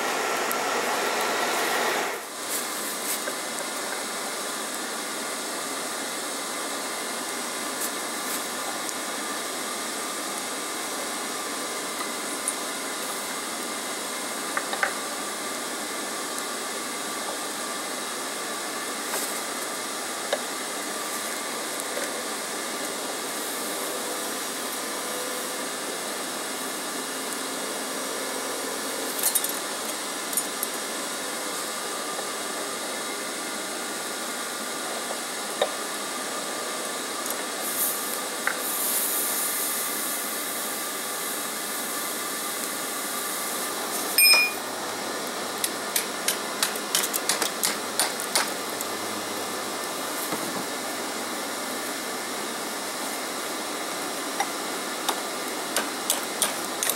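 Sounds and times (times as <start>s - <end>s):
burner rushing hiss: 0.0s - 44.2s, 44.8s - 56.9s
metallic clinks of steel: 44.2s - 44.7s.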